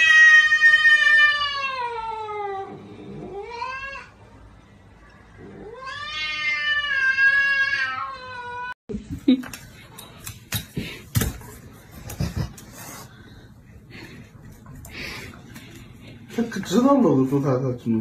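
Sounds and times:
cat yowling: 0.0 - 4.2, 5.4 - 8.8.

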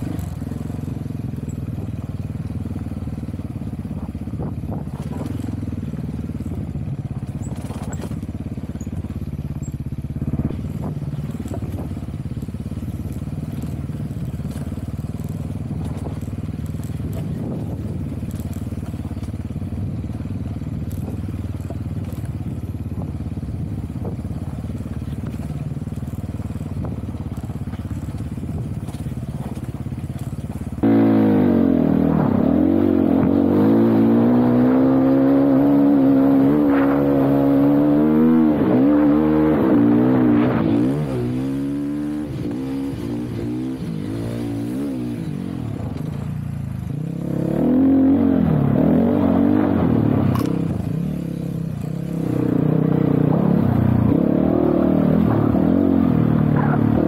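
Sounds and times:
dirt bike engine droning: 0.0 - 57.0.

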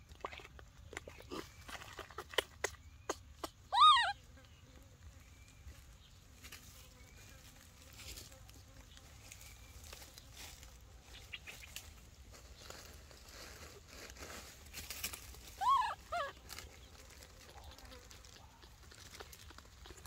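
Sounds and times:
baby monkey squeaking calls: 3.4 - 4.2, 15.6 - 16.4
faint clicks and rustles: 5.7 - 15.6, 16.3 - 20.0.

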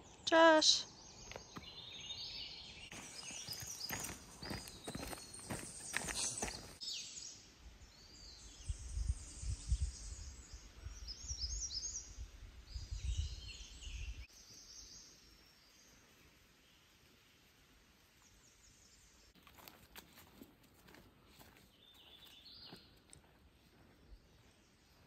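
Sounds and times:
songbirds singing: 0.0 - 17.0, 21.6 - 25.0
footsteps on dirt trail: 1.2 - 2.0, 2.9 - 6.8, 19.4 - 25.0.

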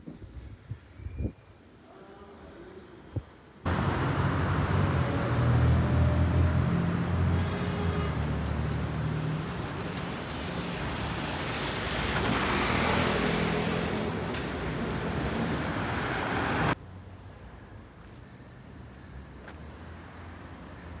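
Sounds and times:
city traffic engine hum: 3.1 - 21.0
vehicle passing by: 3.7 - 16.8.

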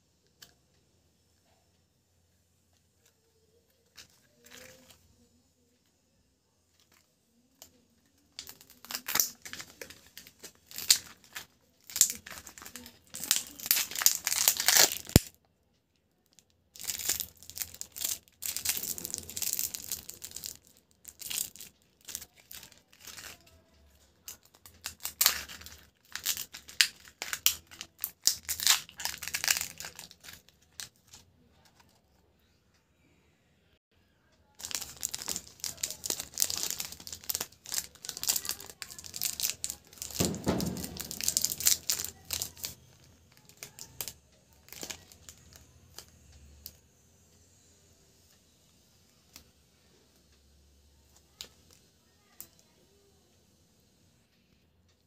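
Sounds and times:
foil and plastic crinkling: 8.4 - 15.3, 16.8 - 23.5, 24.2 - 31.2, 34.6 - 46.1.

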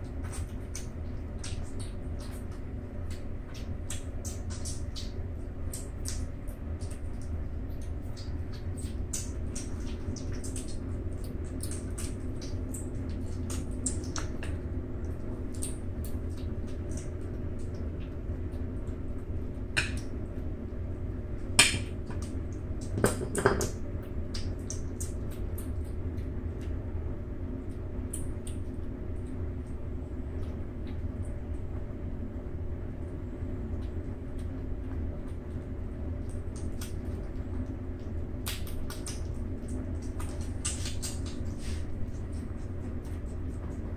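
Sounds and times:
kittens chewing and lapping: 0.0 - 43.9
knocks against a bowl: 23.0 - 23.8.

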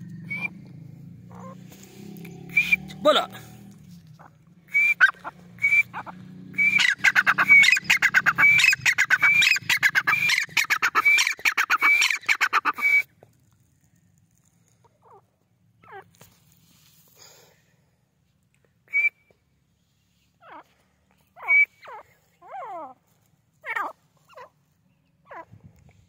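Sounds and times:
bird ringing calls: 0.0 - 1.6, 5.8 - 12.9.

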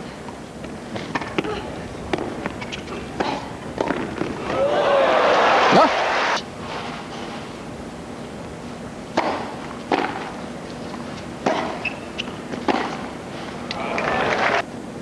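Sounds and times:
racket hitting tennis ball: 1.0 - 4.6, 9.1 - 13.6
crowd noise: 4.4 - 6.4, 13.7 - 14.6.

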